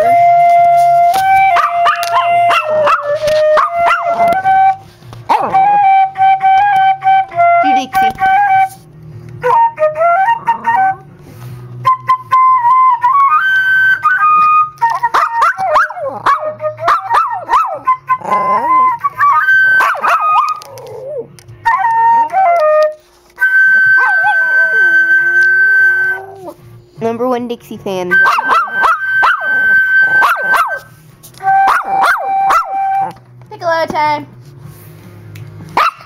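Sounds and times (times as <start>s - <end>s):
flute playing held notes: 0.0s - 26.8s, 28.1s - 33.3s
small dog howling and whining: 15.1s - 21.3s, 23.7s - 26.6s, 28.2s - 30.8s, 31.6s - 33.2s.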